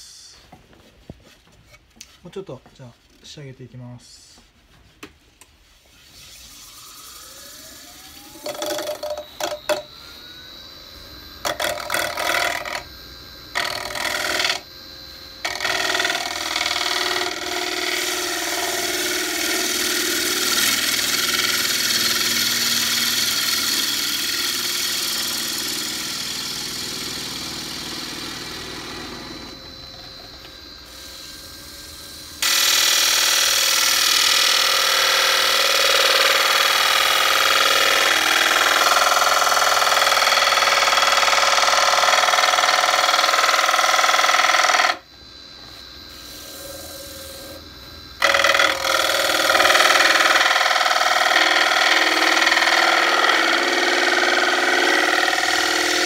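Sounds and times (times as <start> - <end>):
wood lathe whining: 5.8 - 56.0
gouge cutting spinning wood: 6.1 - 10.4, 11.3 - 12.9, 13.5 - 31.0, 32.3 - 45.0, 48.2 - 56.0.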